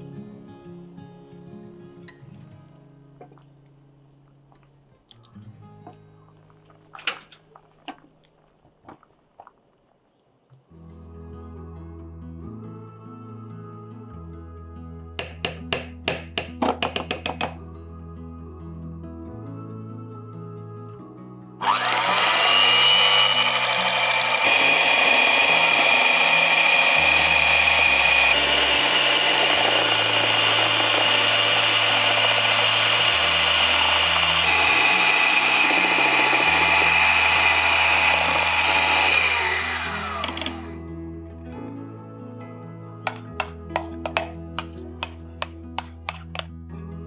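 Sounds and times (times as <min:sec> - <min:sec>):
immersion blender motor whine: 0:21.6 - 0:40.8.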